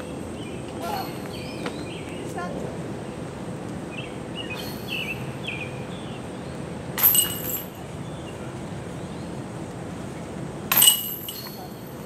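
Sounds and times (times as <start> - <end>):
chains ringing jingle: 7.0 - 7.8, 10.7 - 12.0
disc striking metal chains: 7.0 - 7.8, 10.7 - 12.0.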